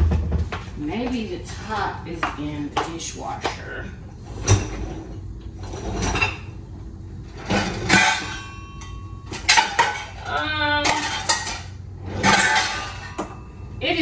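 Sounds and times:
dishes and cutlery clattering: 4.4 - 6.6, 7.4 - 13.5.

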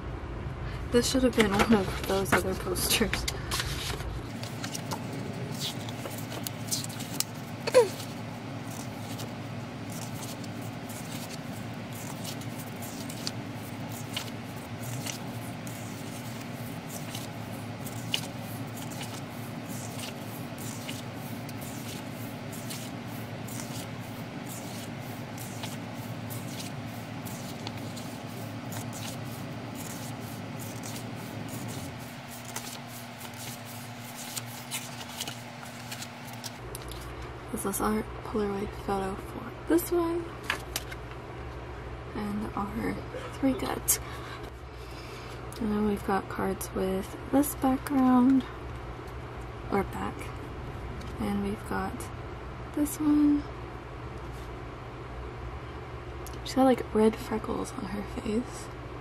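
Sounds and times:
low background hum: 0.0 - 59.0
paper pages rustling: 1.4 - 37.1.

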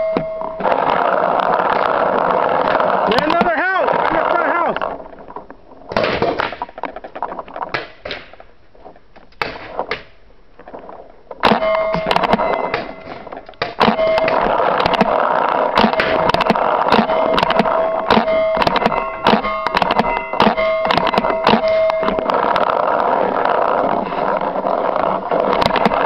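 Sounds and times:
paintballs striking bunkers: 0.0 - 8.6, 9.2 - 26.0
steady hum: 6.6 - 26.0
paintball markers popping: 15.8 - 22.5.

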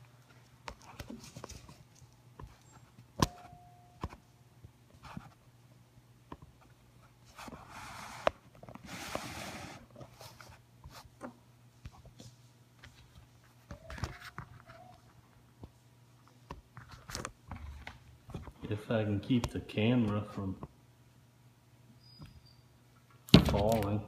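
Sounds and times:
faint low hum: 0.0 - 24.0
brief squeak: 22.0 - 22.7.

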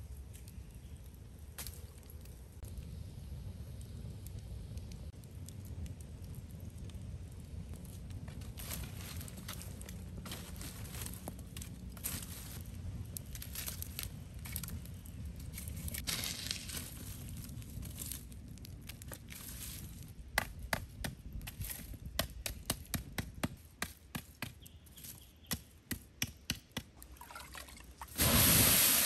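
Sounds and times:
fire crackling: 0.0 - 29.0
fire snapping and popping: 0.0 - 29.0.

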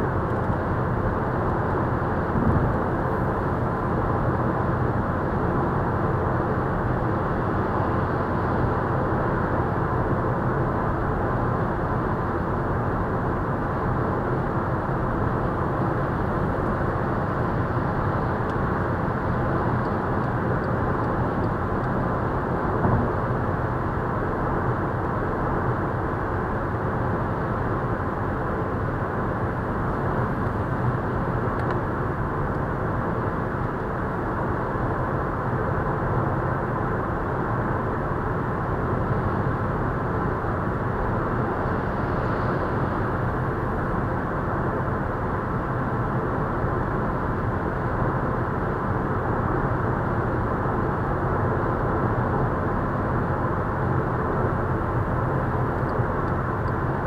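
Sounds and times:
tyre and wind noise in car: 0.1 - 10.6, 11.4 - 35.0
car bump: 22.8 - 23.2.

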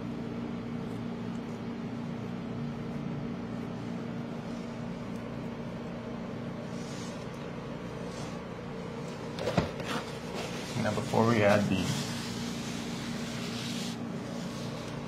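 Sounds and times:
low mechanical hum: 0.0 - 15.0
spatula scraping soft coating: 9.9 - 15.0.

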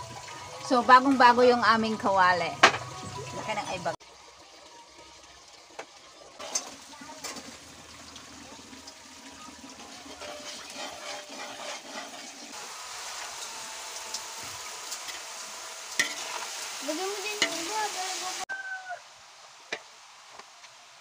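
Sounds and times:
food sizzling in a wok: 0.0 - 5.3, 6.1 - 21.0
metal ladle scraping a pan: 9.5 - 12.6, 15.9 - 16.6.

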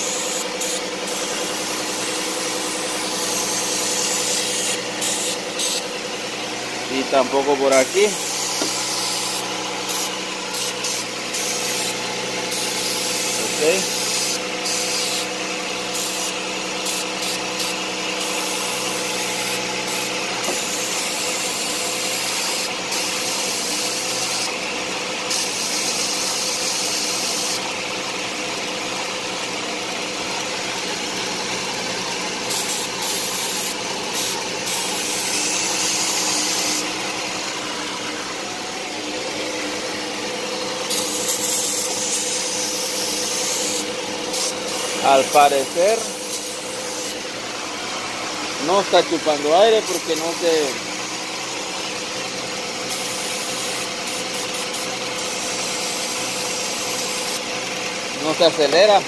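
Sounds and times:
aerosol can hissing: 0.0 - 6.0, 7.4 - 24.5, 25.3 - 27.6, 32.4 - 37.0, 40.8 - 47.2, 49.8 - 50.8, 52.9 - 57.4.

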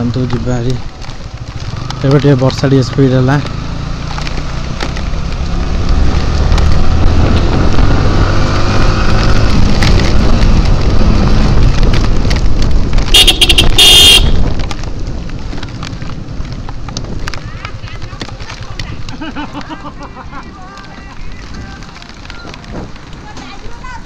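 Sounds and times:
motorcycle engine accelerating: 0.0 - 19.7
horn beeping: 13.1 - 14.4.

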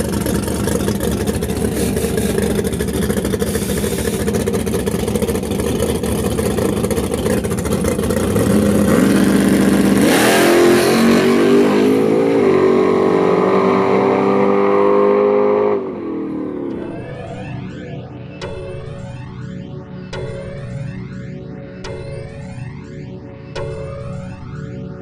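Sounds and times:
drag car engine revving: 0.0 - 18.6.

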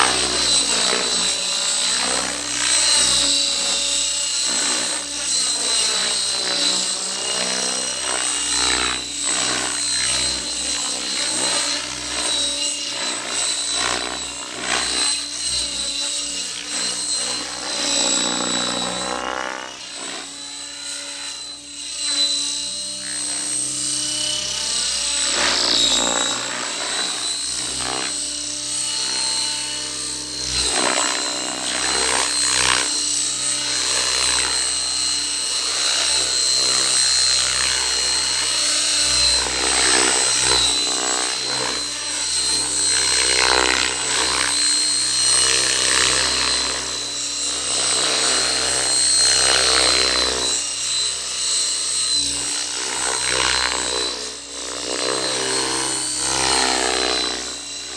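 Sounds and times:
model helicopter high whine: 0.0 - 57.9.

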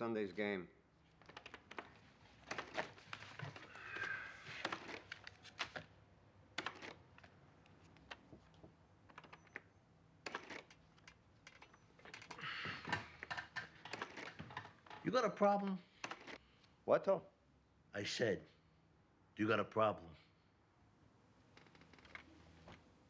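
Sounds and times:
calculator keys tapping: 1.2 - 3.7, 6.6 - 9.7, 10.3 - 15.0.

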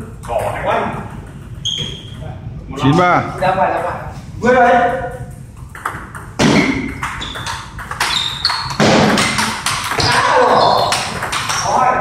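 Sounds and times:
table tennis ball hitting paddles: 5.0 - 12.0.

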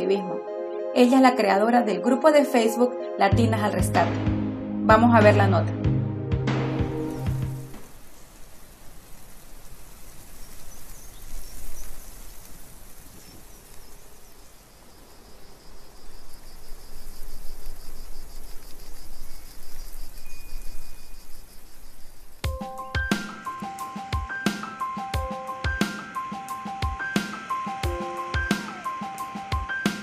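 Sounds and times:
music: 0.0 - 7.8, 22.4 - 30.0
steady noisy hiss: 7.0 - 30.0
insects trilling: 7.7 - 30.0.

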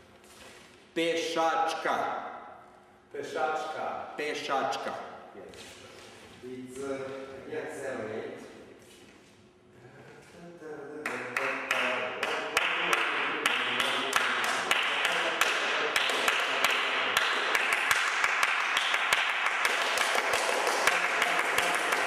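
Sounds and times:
people clapping hands: 11.0 - 22.0.

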